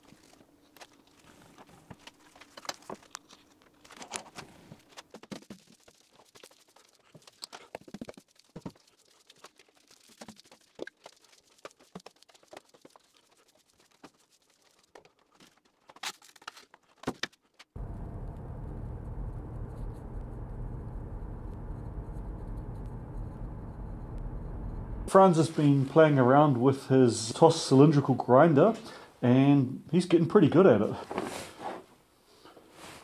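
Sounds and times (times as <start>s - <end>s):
car driving rumble inside cabin: 17.8s - 25.1s
broom sweeping concrete floor: 32.7s - 33.0s.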